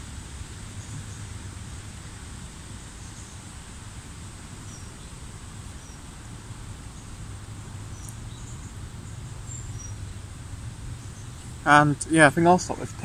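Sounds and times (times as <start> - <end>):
small birds chirping: 2.6 - 3.6, 4.5 - 13.0.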